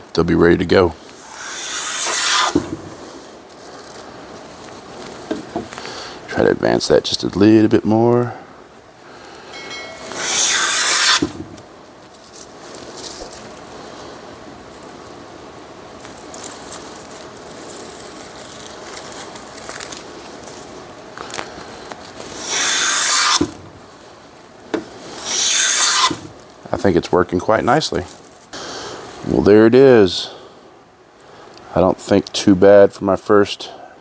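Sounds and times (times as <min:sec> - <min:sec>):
hand plane shaving wood: 0:01.2 - 0:02.6, 0:10.1 - 0:11.3, 0:22.4 - 0:23.5.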